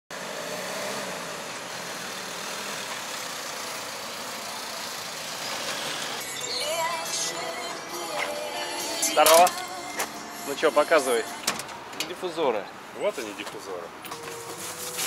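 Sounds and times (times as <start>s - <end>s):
van engine idling: 1.4s - 13.0s.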